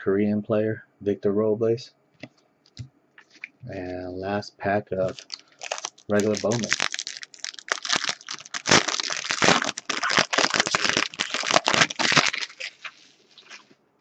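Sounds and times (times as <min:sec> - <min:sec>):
foil wrapper crinkling and tearing: 0:05.0 - 0:13.7.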